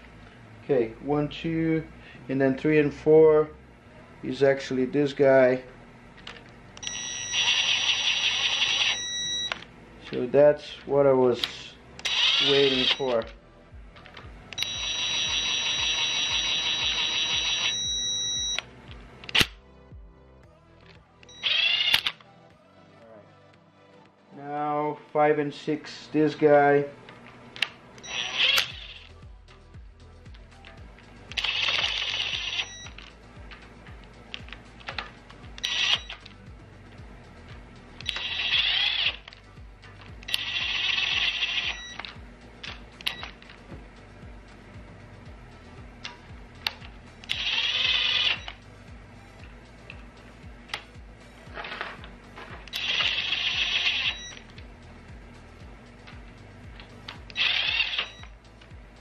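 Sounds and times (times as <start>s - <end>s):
cordless power driver whining: 6.2s - 9.8s, 11.4s - 19.6s, 21.2s - 22.2s, 27.1s - 29.2s, 30.8s - 36.4s, 38.0s - 43.8s, 45.9s - 48.6s, 49.3s - 58.8s
soft background music with beat: 8.7s - 59.0s
sharp click: 19.2s - 19.6s.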